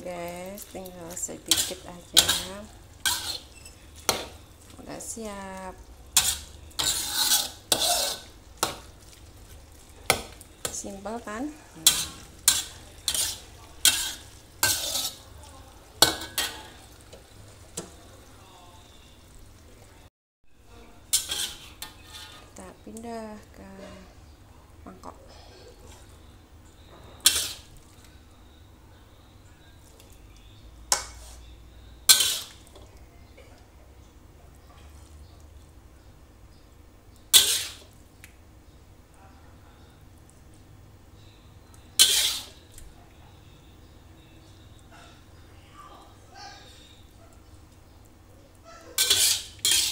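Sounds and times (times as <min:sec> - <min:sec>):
light sizzle from pan: 0:00.0 - 0:20.1, 0:21.0 - 0:23.6, 0:25.8 - 0:39.1, 0:40.0 - 0:43.0, 0:46.6 - 0:49.9
metal spatula scraping a pan: 0:00.6 - 0:04.5, 0:06.1 - 0:09.0, 0:10.0 - 0:15.3, 0:16.0 - 0:17.9, 0:21.1 - 0:22.6, 0:27.1 - 0:27.7, 0:32.1 - 0:32.7, 0:37.3 - 0:37.9, 0:42.0 - 0:42.6, 0:48.9 - 0:49.9.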